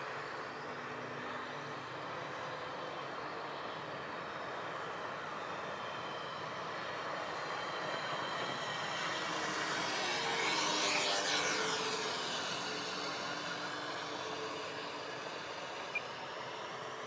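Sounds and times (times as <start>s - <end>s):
model plane motor whir: 4.4s - 17.0s.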